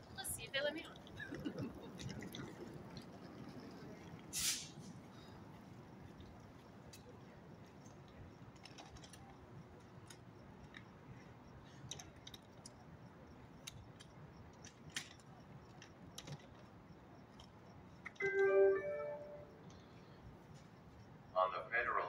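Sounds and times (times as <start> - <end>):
soft clicks and ticks: 6.1 - 18.6.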